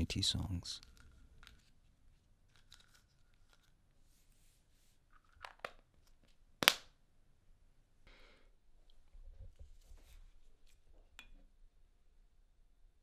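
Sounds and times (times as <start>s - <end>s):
pill bottle rattle: 2.5s - 3.8s.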